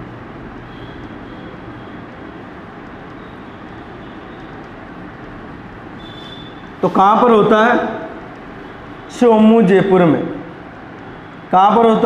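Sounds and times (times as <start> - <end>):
steady background noise: 0.0 - 12.0
marker squeaking on whiteboard: 6.0 - 7.0.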